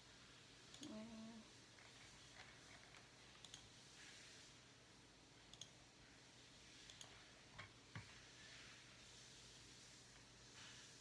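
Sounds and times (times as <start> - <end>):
computer mouse and key clicks: 0.7 - 1.0, 1.8 - 3.8, 5.5 - 5.8, 6.8 - 8.2.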